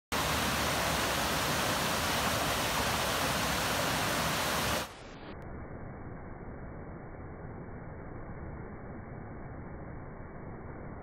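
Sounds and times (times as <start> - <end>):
stream rushing over boulders: 0.1 - 5.0.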